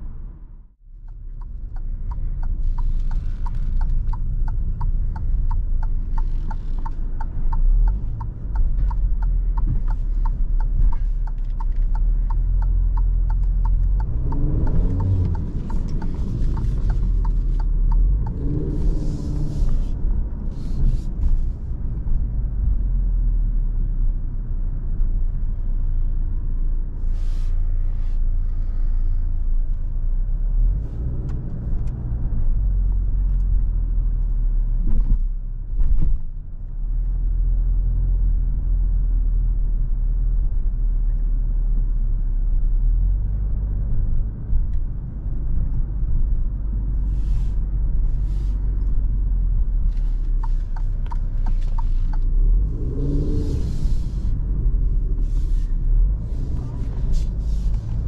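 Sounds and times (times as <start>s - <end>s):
car engine and road rumble: 0.0s - 58.0s
turn signal ticking: 0.8s - 23.0s, 27.6s - 34.4s, 42.6s - 58.0s.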